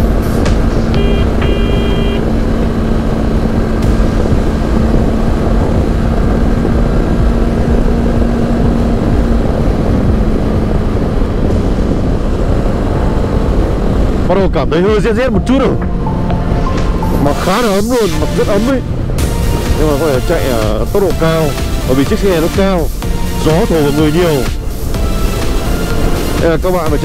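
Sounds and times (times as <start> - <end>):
motorcycle engine cruising: 0.0 - 27.0
short high beeps: 1.0 - 2.2
wind rushing on microphone: 2.2 - 27.0.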